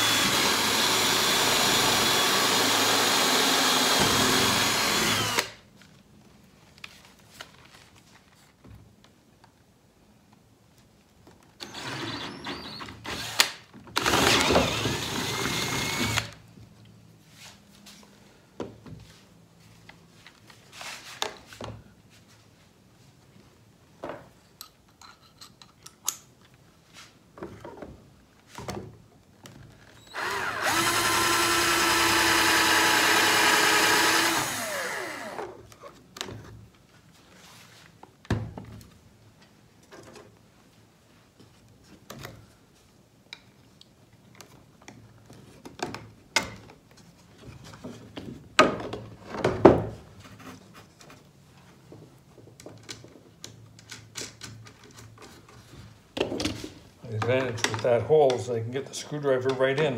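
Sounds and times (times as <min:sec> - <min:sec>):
cordless drill running: 0:00.0 - 0:05.6, 0:11.6 - 0:16.4, 0:30.1 - 0:35.6.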